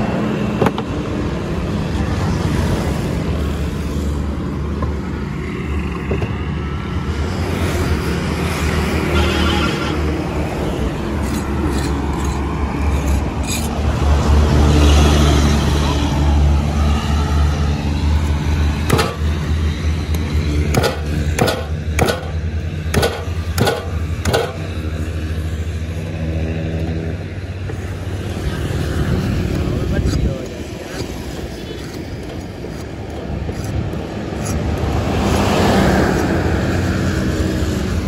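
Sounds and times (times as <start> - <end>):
sharp knocks: 18.9 - 19.2, 20.7 - 24.6.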